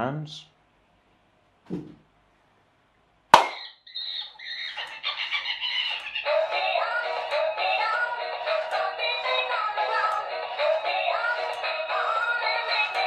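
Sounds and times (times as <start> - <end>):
hand clap: 3.4 - 3.6
toy playing synthesized song: 3.8 - 13.0.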